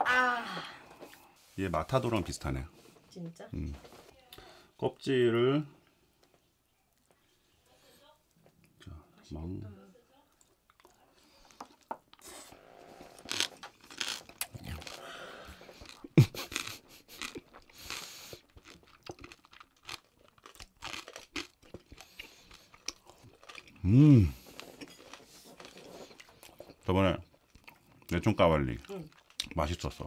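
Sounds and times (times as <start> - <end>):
crunching and chewing: 10.4 - 30.0
hummed mmm: 23.8 - 24.4.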